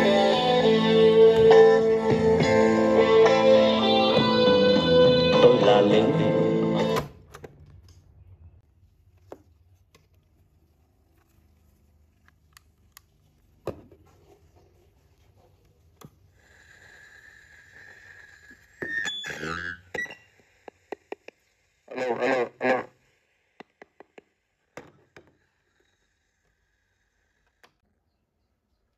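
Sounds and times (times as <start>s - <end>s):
music from radio speaker: 0.0s - 7.1s, 21.9s - 22.9s.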